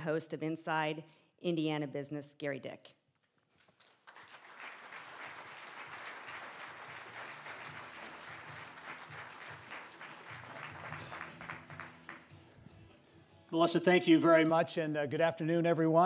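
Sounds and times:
audience applauding: 0:03.8 - 0:12.3.

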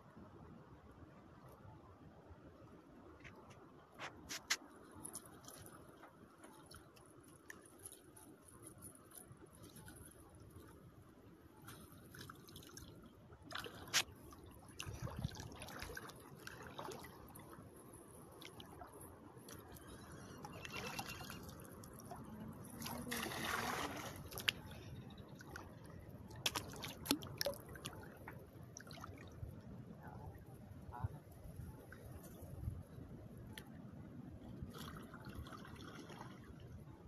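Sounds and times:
water sloshing and trickling: 0:03.0 - 0:37.0
rushing splashes: 0:22.8 - 0:24.6.

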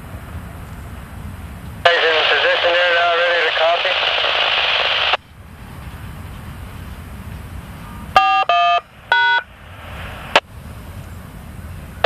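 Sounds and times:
low background rumble: 0:00.0 - 0:12.0
touch-tone beeps over radio: 0:01.9 - 0:05.2, 0:08.2 - 0:09.5.

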